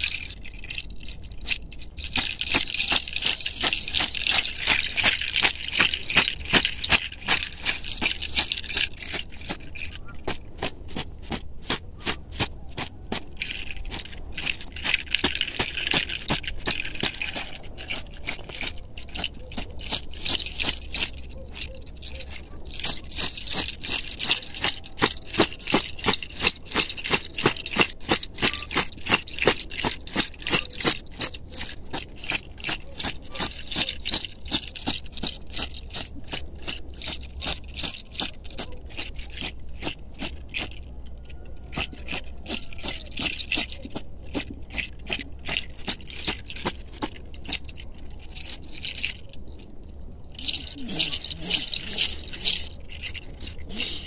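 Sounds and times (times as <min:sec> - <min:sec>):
leaves swishing against body: 0:50.4 - 0:54.0.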